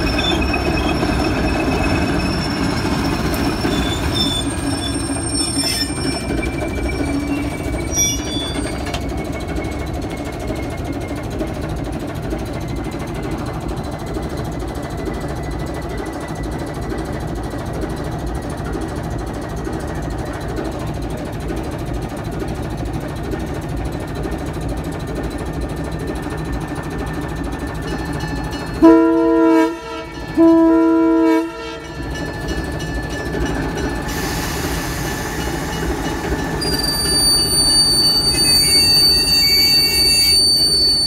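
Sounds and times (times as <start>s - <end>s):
locomotive engine and wheels rumbling: 0.0s - 41.0s
train chime horn blasts: 28.8s - 32.1s.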